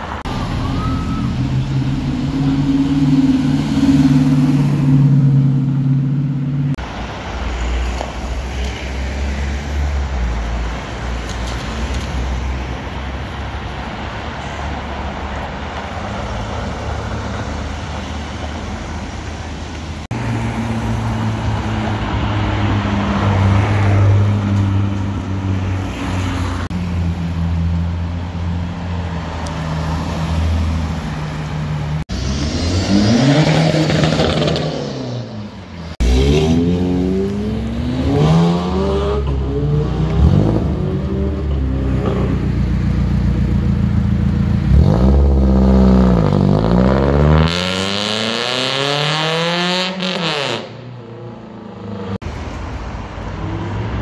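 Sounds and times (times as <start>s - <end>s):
car engine rumble: 0.0s - 7.3s, 26.4s - 47.4s
car engine low note: 0.2s - 6.8s
sports car engine burble: 0.2s - 6.8s.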